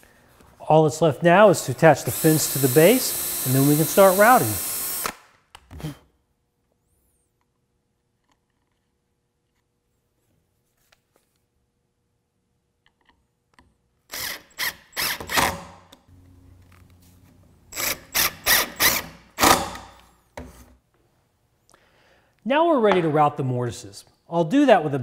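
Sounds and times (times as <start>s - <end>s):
cordless driver driving screws: 2.0s - 5.2s, 17.7s - 20.0s.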